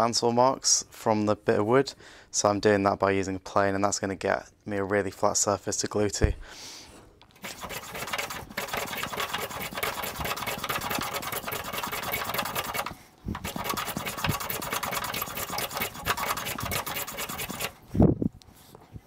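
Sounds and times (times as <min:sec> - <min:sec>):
hand plane shaving wood: 0:07.4 - 0:17.8.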